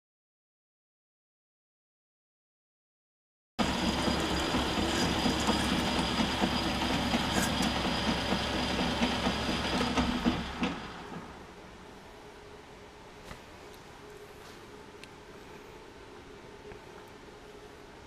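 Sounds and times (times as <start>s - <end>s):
metal lathe running: 3.6s - 11.4s.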